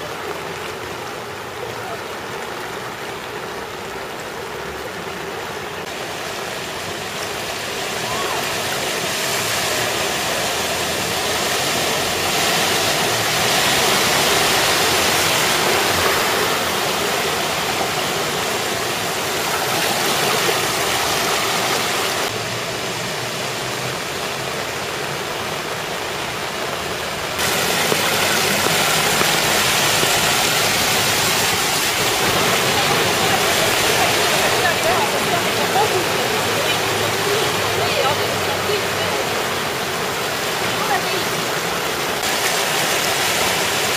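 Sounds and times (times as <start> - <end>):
cars splashing through floodwater: 0.0 - 43.9.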